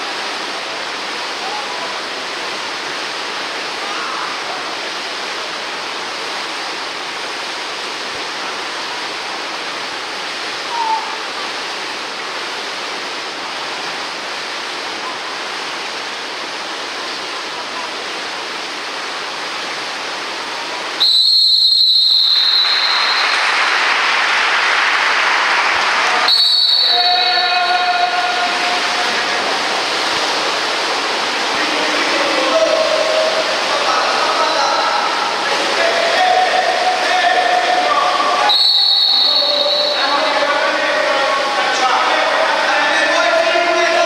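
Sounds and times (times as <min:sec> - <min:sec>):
water splashing in a pool: 0:00.0 - 0:44.0
referee whistle blast: 0:21.0 - 0:23.6, 0:26.2 - 0:28.3, 0:38.4 - 0:40.2.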